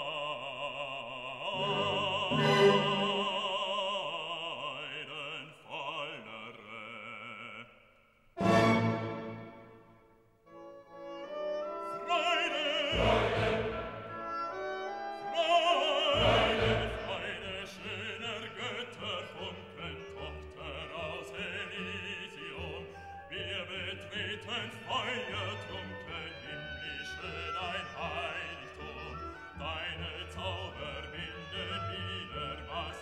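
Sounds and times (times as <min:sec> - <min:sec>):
operatic singing: 0:00.0 - 0:09.9, 0:11.6 - 0:33.0
orchestra playing: 0:01.6 - 0:03.5, 0:08.4 - 0:10.0, 0:10.6 - 0:21.5.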